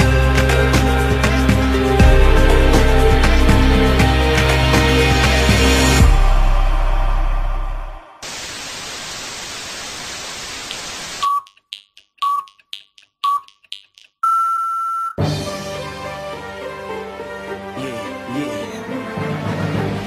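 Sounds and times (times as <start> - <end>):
music: 0.0 - 8.2, 15.2 - 20.0
static hiss: 8.2 - 11.4
short electronic beeps: 11.2 - 15.2.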